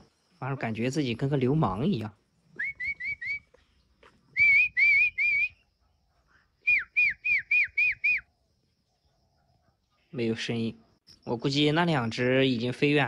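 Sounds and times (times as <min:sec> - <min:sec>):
man whistling through lips: 0:02.5 - 0:03.7, 0:04.3 - 0:05.7, 0:06.6 - 0:08.3.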